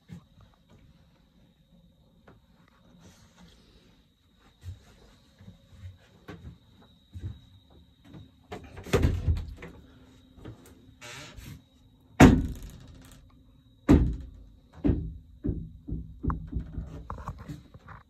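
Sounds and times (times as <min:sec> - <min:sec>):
knocks and thumps: 0:12.2 - 0:13.2, 0:13.8 - 0:18.0.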